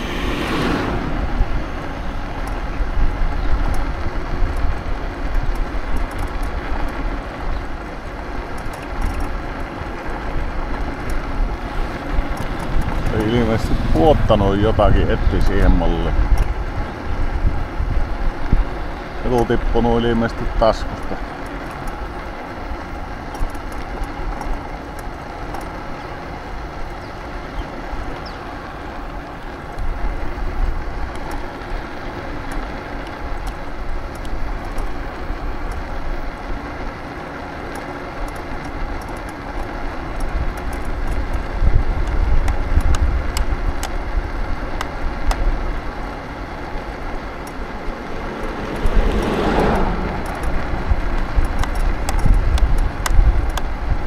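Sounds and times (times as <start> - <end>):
vehicle engine passing close by: 0.0 - 3.0, 10.5 - 17.1, 45.6 - 53.0
wind rumbling on microphone: 0.0 - 37.1, 38.2 - 54.0
road traffic: 0.0 - 54.0.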